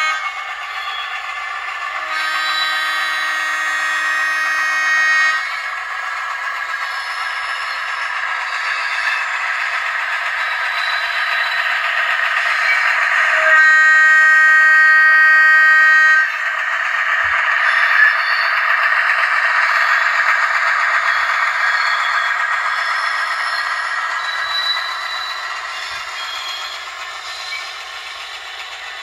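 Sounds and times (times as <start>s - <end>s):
locomotive horn blast: 0.0s - 0.4s, 2.0s - 5.6s, 13.2s - 16.4s
model diesel engine sound: 0.0s - 29.0s
model wheels running on track: 0.0s - 29.0s.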